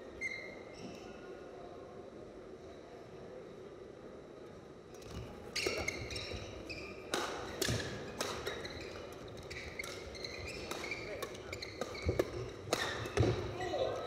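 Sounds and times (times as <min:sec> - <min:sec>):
sneakers squeaking on court floor: 0:05.0 - 0:13.6
rackets striking shuttlecock: 0:07.1 - 0:13.6.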